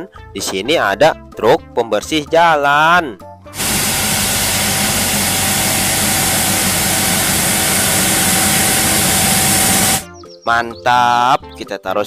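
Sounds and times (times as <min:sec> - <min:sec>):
loud hiss of sweeping gear: 0:03.6 - 0:10.0
steady hum: 0:03.6 - 0:10.0
street sweeper engine running: 0:03.6 - 0:10.0.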